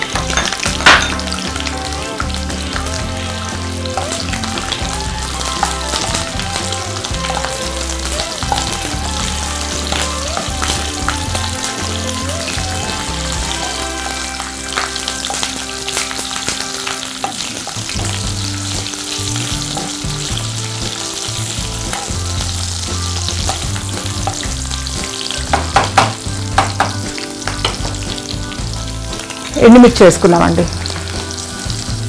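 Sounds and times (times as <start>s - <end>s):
chillies sizzling in hot oil: 0.0s - 32.0s
spoon knocking against pan: 25.4s - 28.0s.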